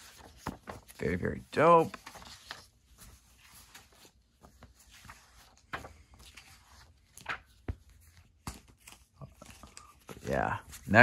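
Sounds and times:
comic book rustling: 0:00.0 - 0:11.0.

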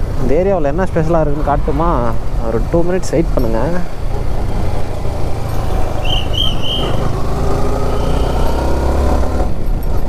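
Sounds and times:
motorcycle engine accelerating: 0:03.9 - 0:10.0
short high beeps: 0:07.9 - 0:08.7.

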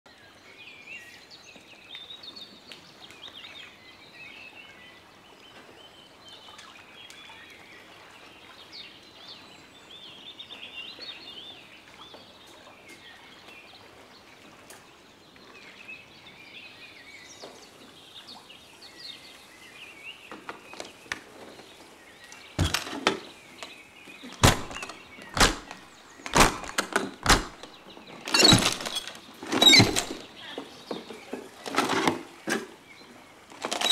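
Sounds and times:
birds chirping and singing: 0:22.4 - 0:32.0
metal case latches clacking: 0:22.6 - 0:30.3, 0:33.5 - 0:33.9.

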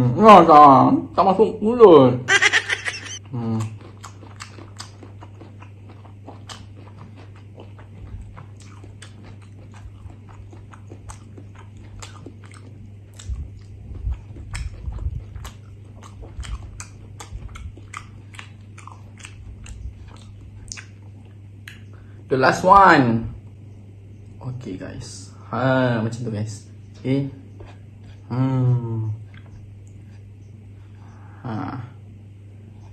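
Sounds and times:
chewing: 0:03.2 - 0:21.9, 0:29.2 - 0:31.2
wet mouth clicks: 0:15.4 - 0:21.0.

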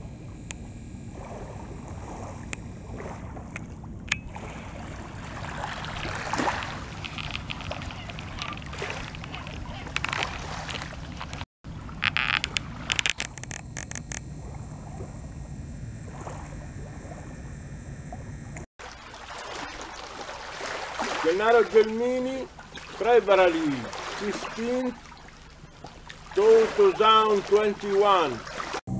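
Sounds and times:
wind on microphone: 0:00.0 - 0:18.7
small waves lapping on shore: 0:00.0 - 0:28.8.

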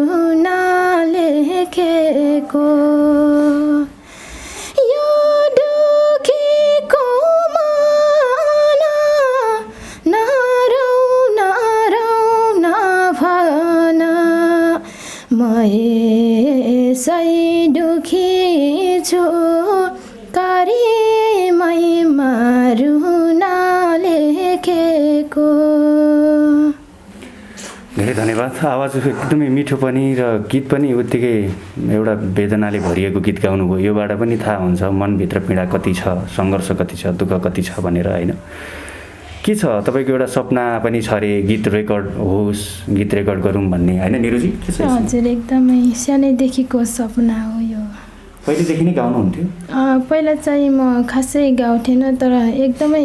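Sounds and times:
woman singing unaccompanied: 0:00.0 - 0:04.0, 0:04.7 - 0:26.9, 0:44.5 - 0:48.1, 0:49.6 - 0:53.0.

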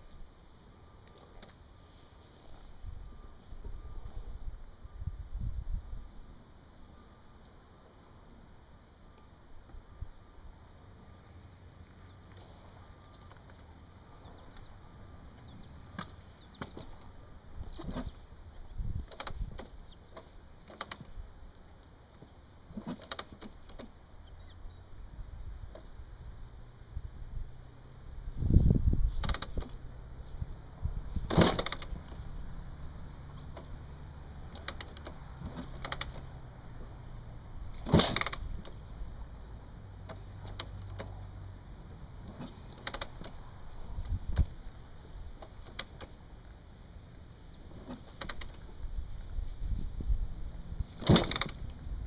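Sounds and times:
motorcycle kickstarter being kicked: 0:15.9 - 0:18.2, 0:22.2 - 0:23.9, 0:29.1 - 0:29.8, 0:31.1 - 0:32.3, 0:34.5 - 0:36.3, 0:37.7 - 0:38.8, 0:42.2 - 0:43.4, 0:47.6 - 0:48.8, 0:50.9 - 0:51.8.

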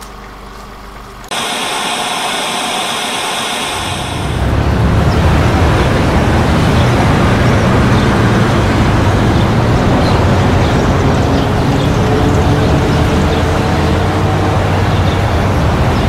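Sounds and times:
rumble of passing vehicles: 0:03.8 - 0:16.0.

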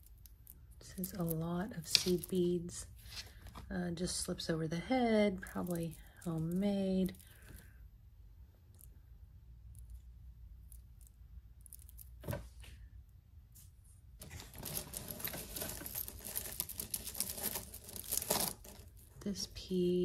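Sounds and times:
bead necklaces clicking and rattling: 0:05.4 - 0:07.6, 0:14.2 - 0:19.2.

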